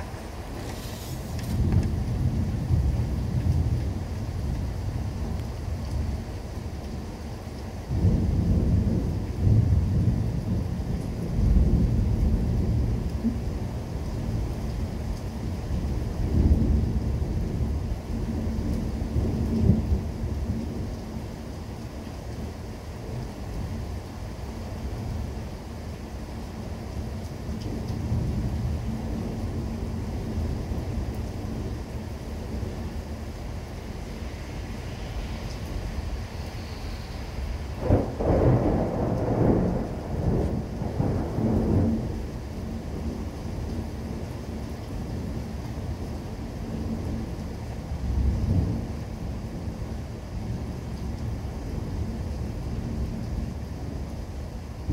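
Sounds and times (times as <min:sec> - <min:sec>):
thunder rumbling: 0:00.0 - 0:05.4, 0:07.9 - 0:13.6, 0:27.8 - 0:46.1, 0:47.9 - 0:54.9.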